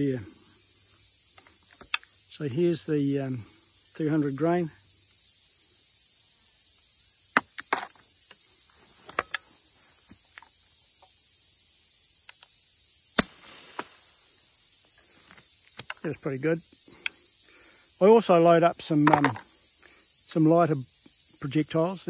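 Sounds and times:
insect hiss: 0.0 - 22.0
suppressed gunshot: 13.2 - 14.0.

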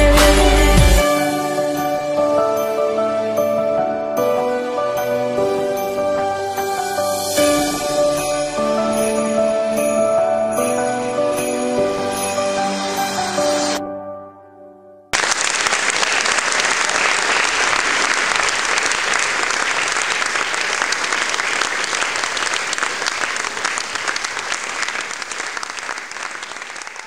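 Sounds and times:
audience applauding: 15.2 - 27.0.

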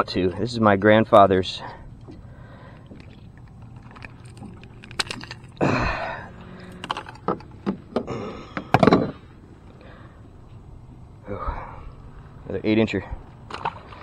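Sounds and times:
tool laid on plastic deck: 6.7 - 9.2.

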